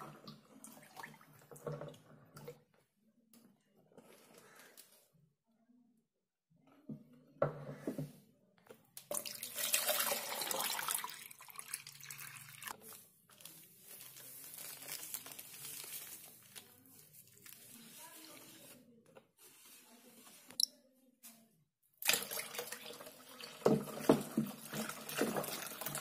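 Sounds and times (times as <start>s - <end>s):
liquid pouring into water: 9.1s - 12.8s, 22.0s - 26.0s
plastic bag crinkling: 13.3s - 17.6s.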